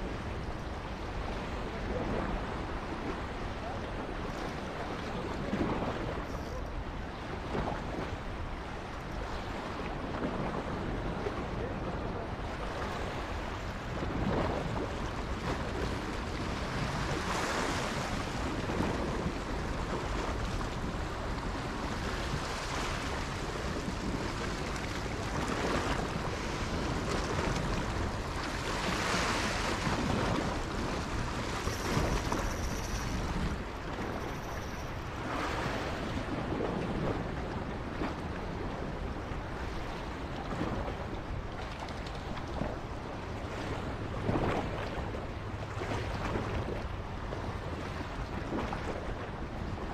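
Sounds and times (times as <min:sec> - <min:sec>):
wind on microphone: 0:00.0 - 0:49.9
waves washing against rocks: 0:12.6 - 0:38.7.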